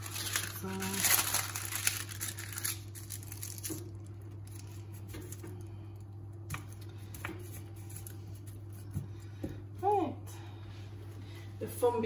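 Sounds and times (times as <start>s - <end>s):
paper rustling: 0.0s - 3.9s
steady low hum: 0.0s - 12.0s.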